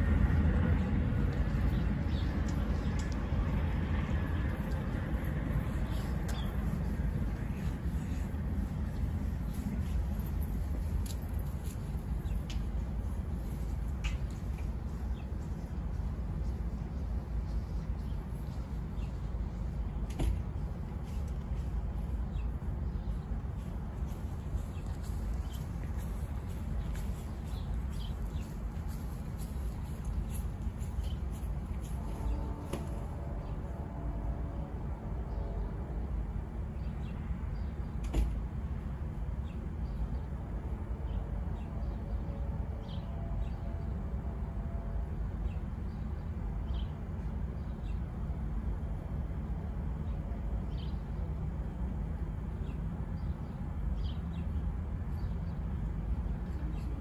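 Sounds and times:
low outdoor rumble: 0.0s - 57.0s
small birds chirping: 22.0s - 32.5s.

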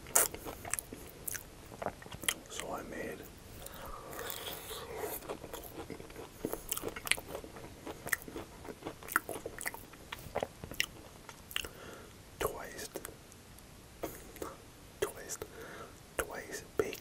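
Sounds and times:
crunchy biting and chewing: 0.0s - 2.6s, 3.6s - 11.8s.

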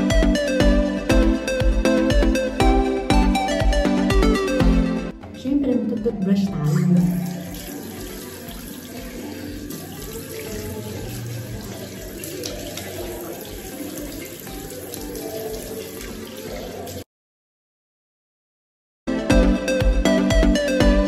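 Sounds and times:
water running from tap into sink: 6.6s - 17.1s.

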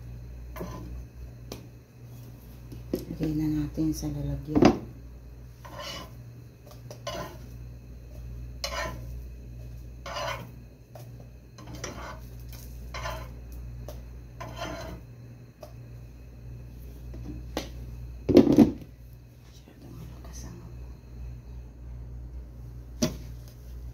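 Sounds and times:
steady low hum: 0.0s - 23.9s
metal spatula scraping frying pan: 0.5s - 0.9s, 5.6s - 6.2s, 7.0s - 7.4s, 8.6s - 9.1s, 10.0s - 10.6s, 11.6s - 12.3s, 12.9s - 13.4s, 14.4s - 15.0s.

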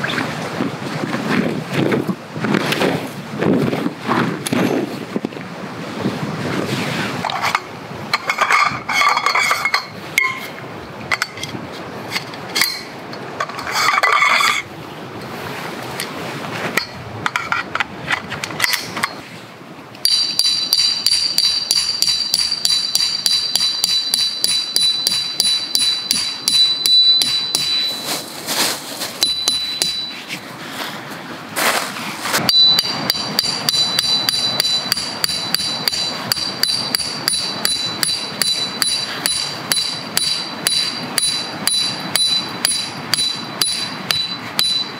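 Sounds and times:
metal poles clinking together: 7.2s - 14.7s, 20.0s - 28.2s, 29.2s - 30.4s, 32.4s - 44.9s
hammer driving steel peg: 20.0s - 28.1s, 29.2s - 30.3s, 32.5s - 44.9s
peg ringing high tone: 20.0s - 28.3s, 29.2s - 30.3s, 32.5s - 44.9s.

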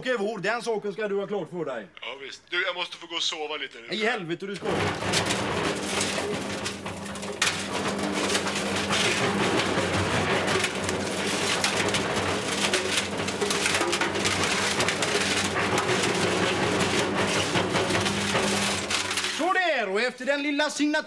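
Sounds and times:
cement mixer motor hum: 4.6s - 19.4s
debris rattling in mixer drum: 4.6s - 19.9s.

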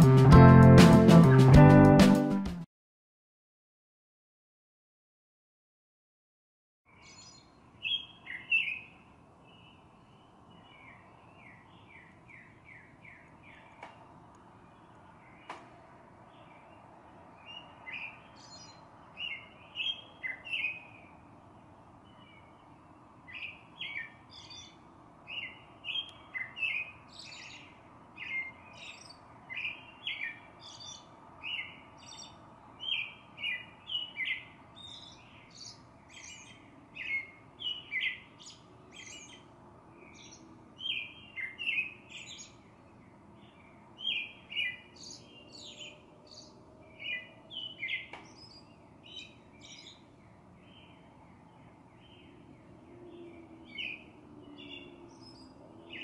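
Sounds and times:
songbird chirping: 6.9s - 56.0s.

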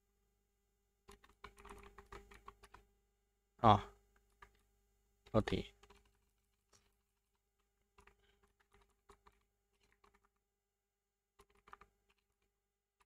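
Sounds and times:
faint keyboard keystrokes: 1.1s - 2.9s.

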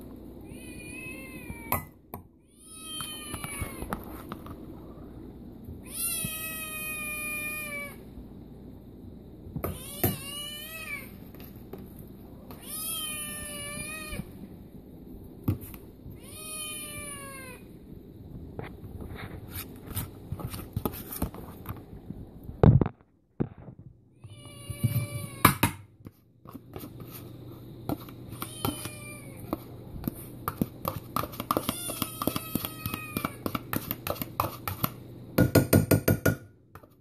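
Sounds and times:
cat meowing: 0.4s - 1.9s, 5.8s - 8.0s, 9.7s - 11.1s, 12.4s - 14.4s, 16.2s - 17.6s.

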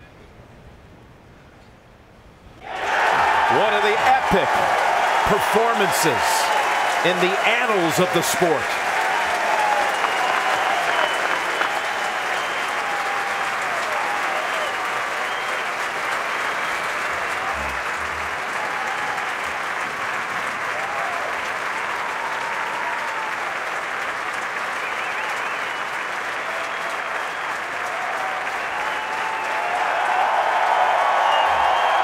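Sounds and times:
people shouting: 2.6s - 6.2s
crowd applauding: 2.6s - 32.0s.

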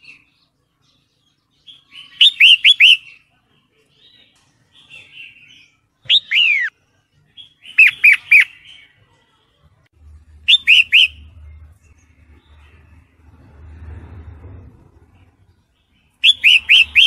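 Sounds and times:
soft bird chatter: 0.0s - 17.0s
bird calling: 1.7s - 3.2s, 4.9s - 6.7s, 7.4s - 8.9s, 10.5s - 11.3s, 16.2s - 17.0s.

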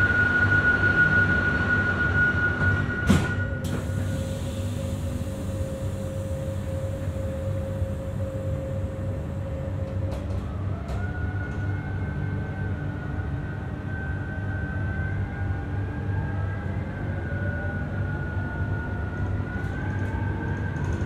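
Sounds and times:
train motor whine: 0.0s - 11.7s
train low rumble: 0.0s - 21.0s.

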